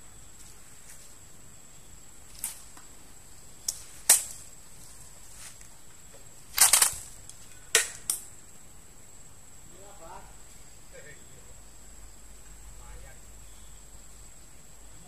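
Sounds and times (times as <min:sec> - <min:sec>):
dry sticks snapping underfoot: 0:02.3 - 0:02.9, 0:03.6 - 0:04.5, 0:06.5 - 0:08.3
rifle firing crack: 0:06.5 - 0:08.3.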